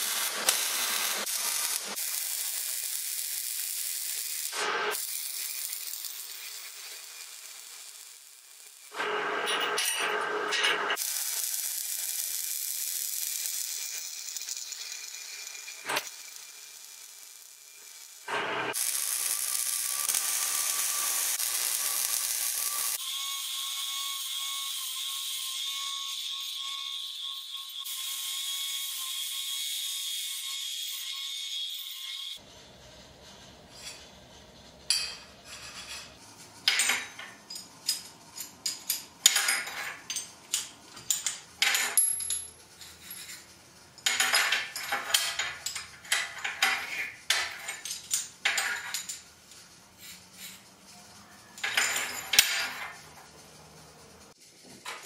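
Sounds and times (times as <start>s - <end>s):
welder crackling and hissing: 0.0s - 9.6s, 10.9s - 23.1s, 42.8s - 55.0s
angle grinder cutting steel: 0.0s - 35.0s
steel pieces clinking on table: 34.9s - 50.6s, 51.4s - 53.5s.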